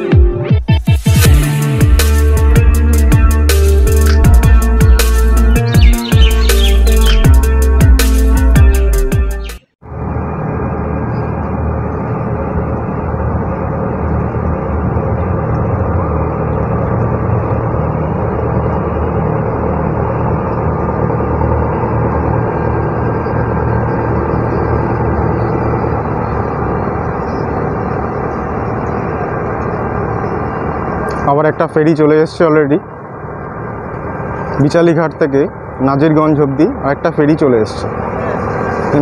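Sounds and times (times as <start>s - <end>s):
ferry engine humming: 1.2s - 39.0s
rushing noise: 9.8s - 34.9s, 37.7s - 39.0s.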